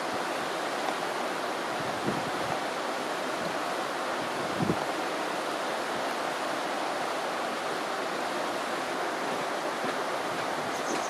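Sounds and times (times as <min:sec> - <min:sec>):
river rushing over stones: 0:00.0 - 0:11.0.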